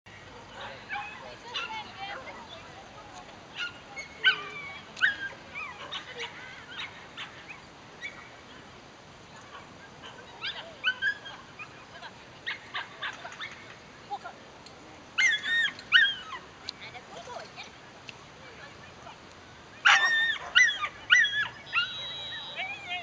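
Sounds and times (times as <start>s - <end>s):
dogs whining and yipping: 15.2s - 16.4s, 19.9s - 23.0s.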